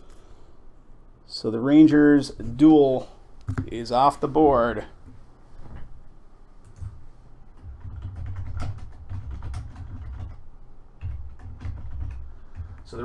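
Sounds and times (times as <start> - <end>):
keyboard keys clicking: 7.6 - 10.4.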